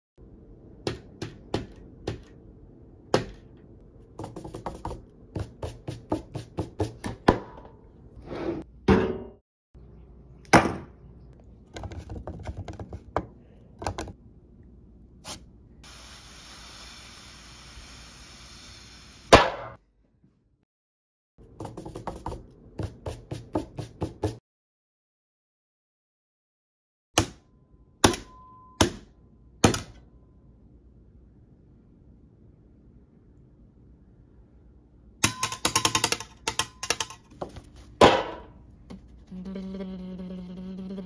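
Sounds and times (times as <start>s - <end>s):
steady hiss: 15.8s - 19.3s.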